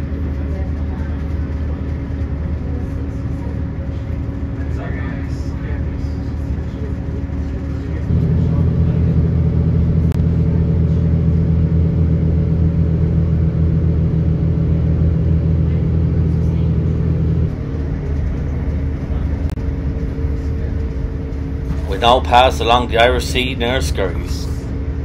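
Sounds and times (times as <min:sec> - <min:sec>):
train engine droning: 0:00.0 - 0:25.0.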